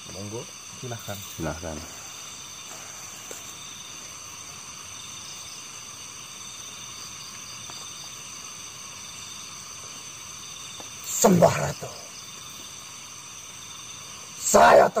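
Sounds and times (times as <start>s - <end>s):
background hiss: 0.0s - 15.0s
night insects chirring: 0.0s - 15.0s.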